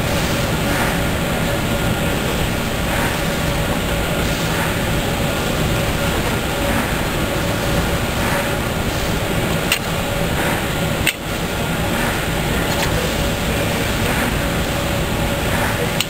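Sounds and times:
factory machinery hum: 0:00.0 - 0:16.0
sharp clicks: 0:09.6 - 0:09.9, 0:10.5 - 0:11.2.

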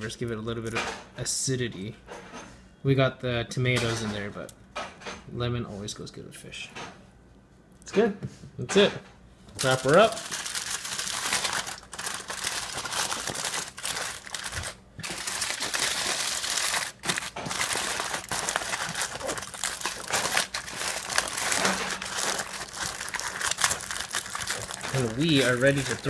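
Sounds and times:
aluminium foil crinkling: 0:09.6 - 0:26.0.

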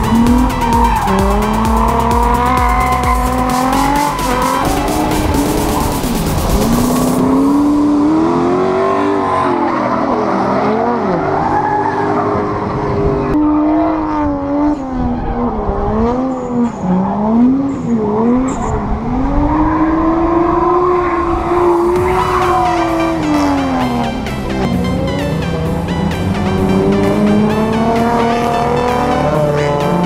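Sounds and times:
tyre squeal: 0:00.0 - 0:05.9
car engines revving: 0:00.0 - 0:30.0.

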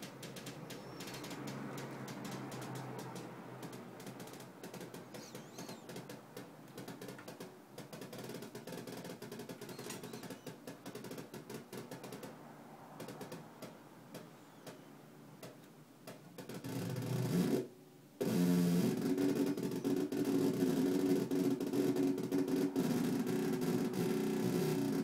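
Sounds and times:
electronic crackle of rapid clicks: 0:00.0 - 0:12.3, 0:18.2 - 0:25.0
rough electronic buzz: 0:16.6 - 0:25.0.

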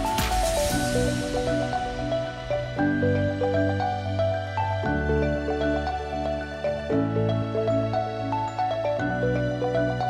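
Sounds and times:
drum beat: 0:00.0 - 0:00.9.

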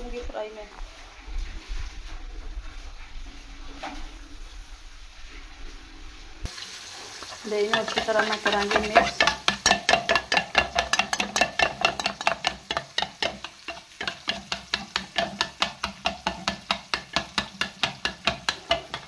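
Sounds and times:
metal spoon clinking in metal pot: 0:07.6 - 0:19.0.

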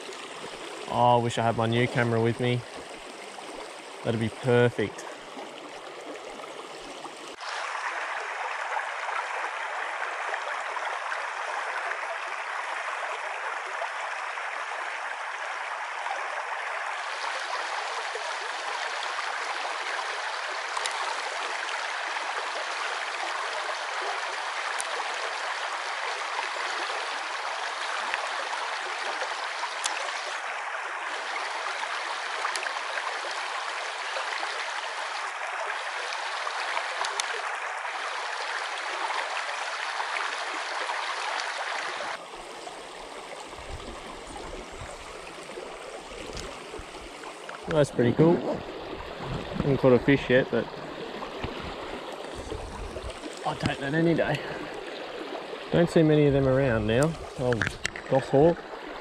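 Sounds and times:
river water rushing: 0:00.0 - 0:01.4, 0:02.1 - 0:59.0
faint ticks: 0:20.7 - 0:21.0, 0:37.0 - 0:37.3.

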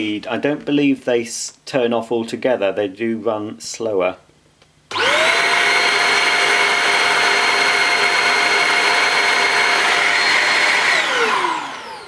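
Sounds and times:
handheld vacuum whine: 0:04.9 - 0:12.0.

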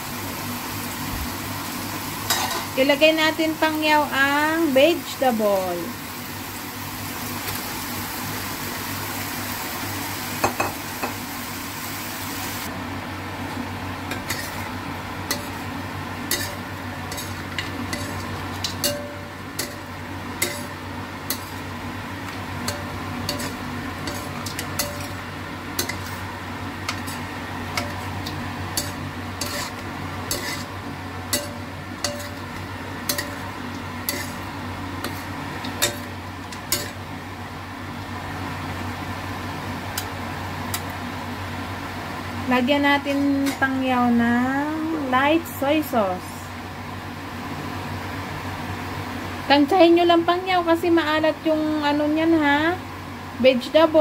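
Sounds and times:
food sizzling: 0:00.0 - 0:54.0
steady low hum: 0:12.6 - 0:54.0
metal spatula scraping wok: 0:14.1 - 0:21.7, 0:22.6 - 0:25.2, 0:25.8 - 0:37.0.

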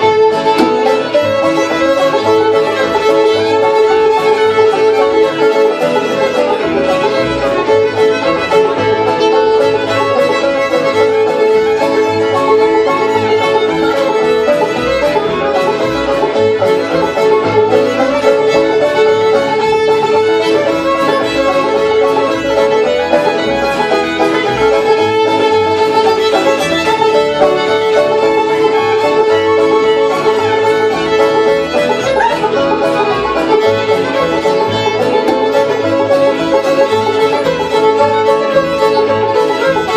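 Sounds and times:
fiddle: 0:00.0 - 0:39.9
upright bass: 0:00.0 - 0:39.9.

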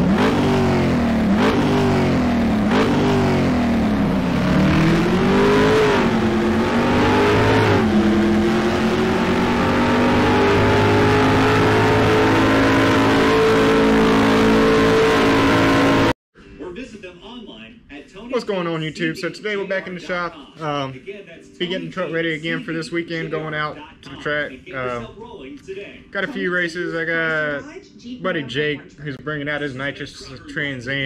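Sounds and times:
car engine accelerating: 0:00.0 - 0:16.2.

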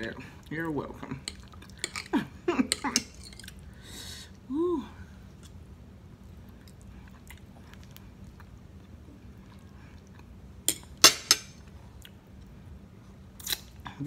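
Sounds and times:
person chewing food: 0:06.4 - 0:10.5.

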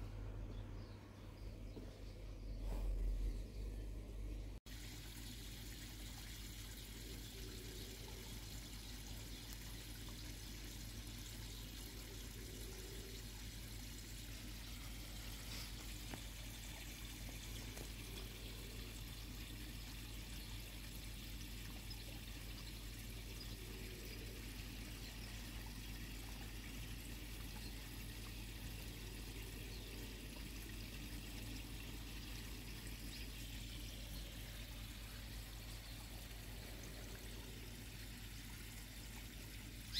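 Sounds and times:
low hum: 0:00.0 - 0:04.6
water pouring into pond: 0:04.3 - 0:39.9.

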